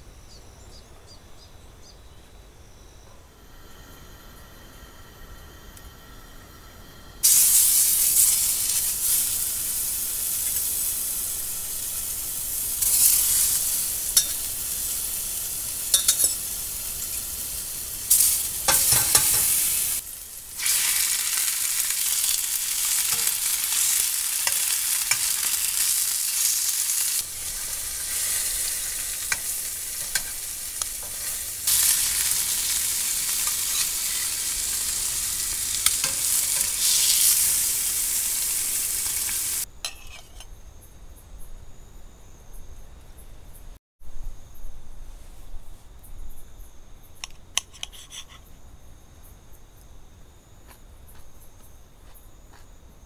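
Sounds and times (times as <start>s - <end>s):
food sizzling in oil: 3.4s - 40.4s
spatula clicks and scrapes: 47.2s - 48.4s.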